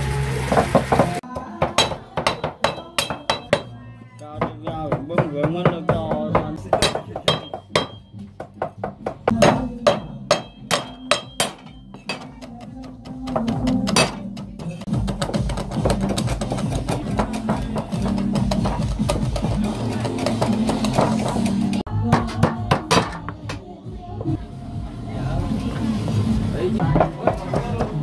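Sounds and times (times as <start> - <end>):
frying sizzle: 0.0 - 1.2.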